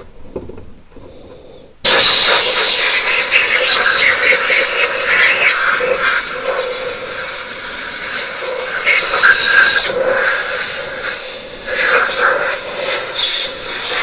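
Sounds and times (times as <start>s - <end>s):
air spray gun hissing: 1.8s - 14.0s.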